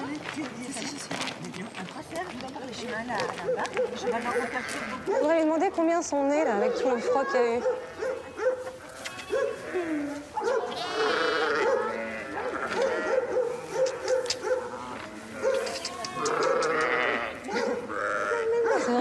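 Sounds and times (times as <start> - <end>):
sheep bleating: 4.3 - 5.1, 8.9 - 13.2, 14.8 - 18.6.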